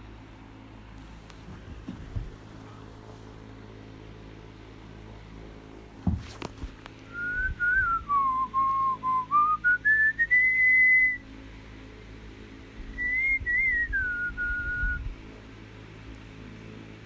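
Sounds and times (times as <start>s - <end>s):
person whistling a slow tune: 7.1s - 11.2s, 13.0s - 15.1s.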